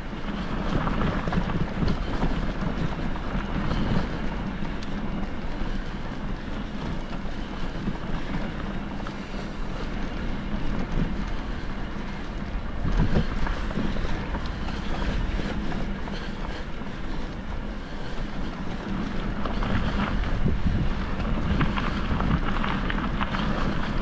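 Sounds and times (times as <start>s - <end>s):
steady low hum: 0.0s - 24.0s
wind buffeting microphone: 0.0s - 24.0s.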